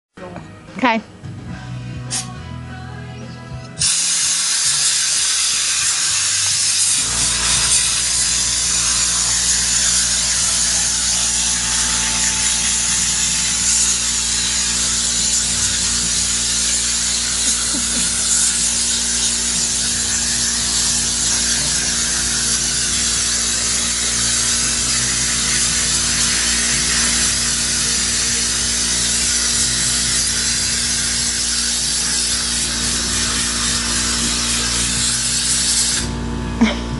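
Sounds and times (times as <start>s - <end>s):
air compressor hissing: 3.8s - 36.9s
low motor hum: 36.0s - 36.9s.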